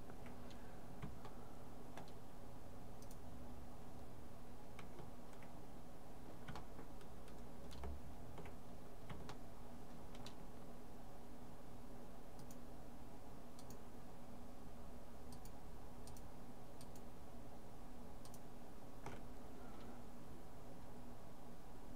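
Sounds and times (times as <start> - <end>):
steady low hum: 0.0 - 21.9
computer mouse clicks: 2.0 - 2.2, 3.0 - 3.2, 10.1 - 10.4, 12.4 - 12.6, 13.6 - 13.8, 15.3 - 17.1, 18.2 - 18.4.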